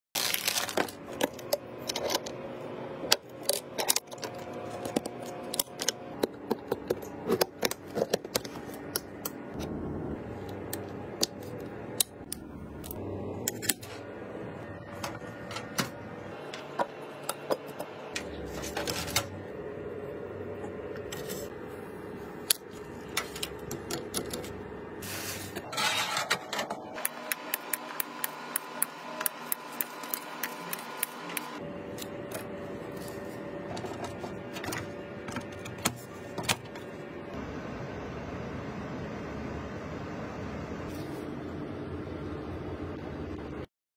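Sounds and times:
plastic bag crinkling: 0.2 - 1.2.

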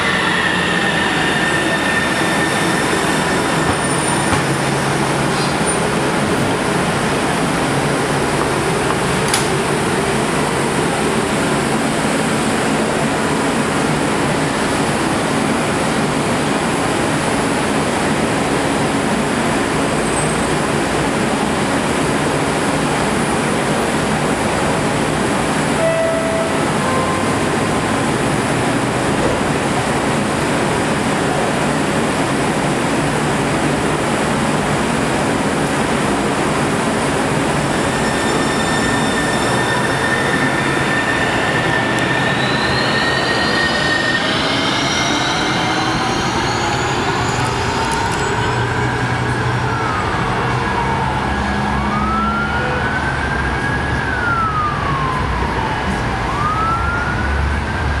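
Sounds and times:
train hiss and hum: 21.9 - 49.8
short tone: 25.8 - 27.4, 37.9 - 48.4.

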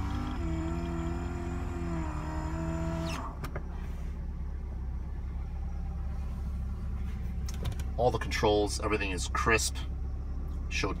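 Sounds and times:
power window motor whining: 0.0 - 4.0
car engine idling: 0.0 - 11.0.

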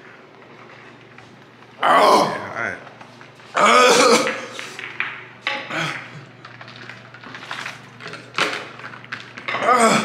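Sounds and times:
man groaning: 1.8 - 2.6, 9.6 - 10.0.

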